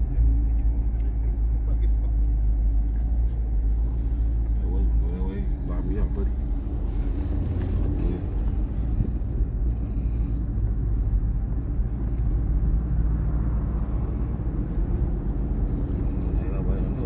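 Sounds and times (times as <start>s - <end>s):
car engines running: 0.0s - 17.0s.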